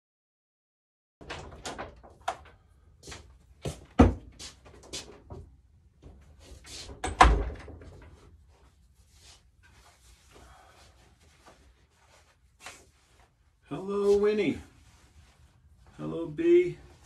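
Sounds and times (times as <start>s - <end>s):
knocks and clatter of handling things: 1.2s - 8.8s.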